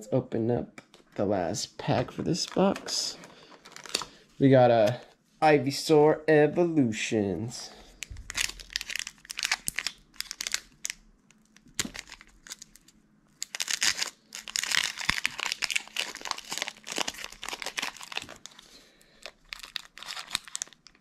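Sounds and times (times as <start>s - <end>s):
foil wrapper crinkling: 2.4s - 4.2s, 8.0s - 21.0s.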